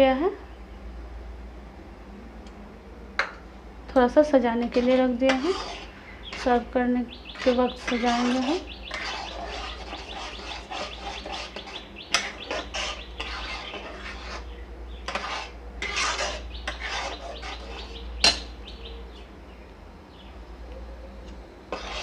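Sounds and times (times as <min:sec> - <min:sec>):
metal spatula scraping pan: 0:04.6 - 0:18.5, 0:21.7 - 0:22.0.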